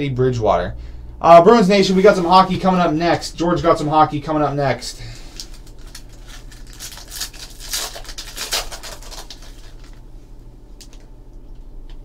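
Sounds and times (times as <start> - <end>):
low electrical hum: 0.0 - 12.0
foil wrapper crinkling: 5.0 - 10.1.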